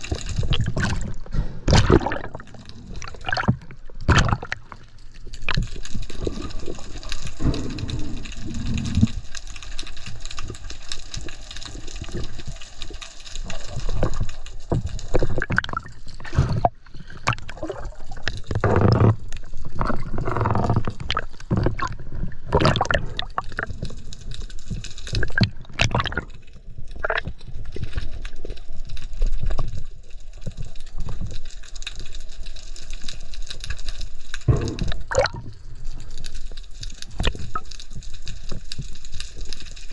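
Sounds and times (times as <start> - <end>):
water gurgling and churning: 0.0 - 9.2, 13.5 - 23.9, 25.1 - 26.4, 34.5 - 35.6.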